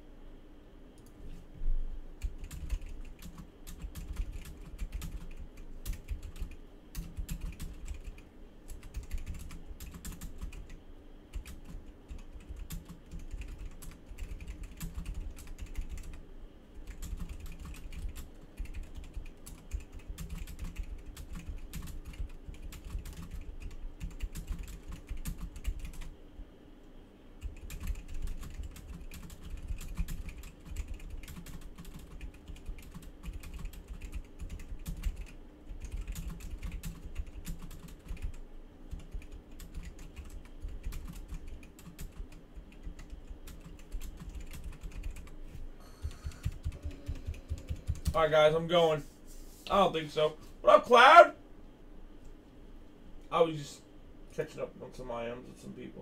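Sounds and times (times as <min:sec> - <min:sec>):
keyboard typing: 0:02.2 - 0:16.2, 0:16.8 - 0:26.1, 0:27.4 - 0:48.2.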